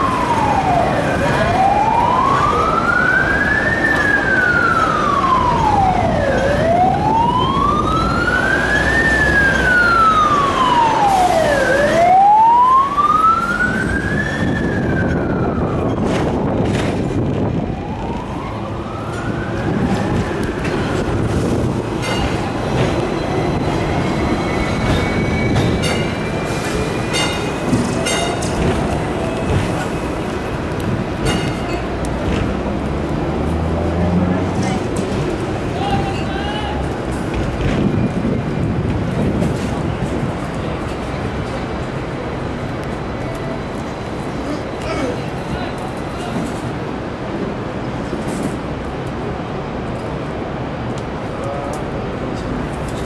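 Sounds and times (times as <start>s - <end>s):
emergency vehicle siren wailing: 0.0s - 31.2s
tram running rumble: 0.0s - 53.0s.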